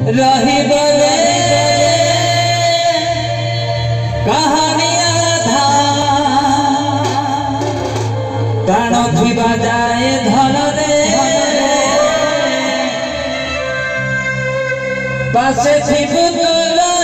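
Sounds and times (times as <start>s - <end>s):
band accompaniment: 0.0s - 17.0s.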